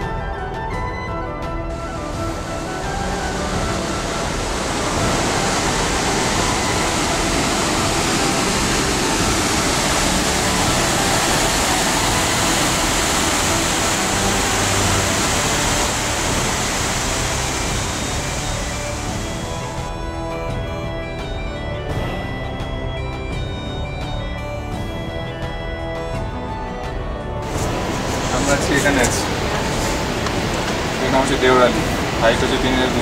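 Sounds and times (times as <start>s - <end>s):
water rushing over boulders: 1.7s - 20.6s, 27.4s - 33.0s.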